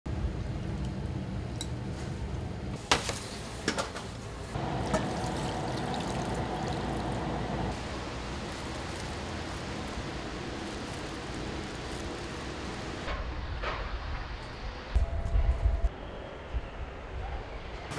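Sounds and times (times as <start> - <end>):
steady low background hum: 0.1 - 16.2
liquid pouring: 4.6 - 7.8.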